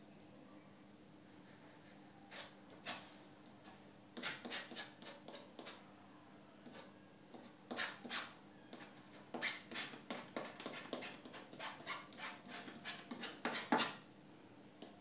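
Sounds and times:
palette knife scraping canvas: 4.2s - 5.8s, 7.7s - 14.0s.

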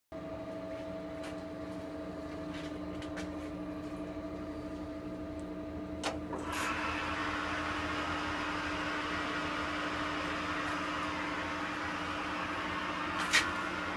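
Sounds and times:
lathe running: 6.3s - 13.9s.

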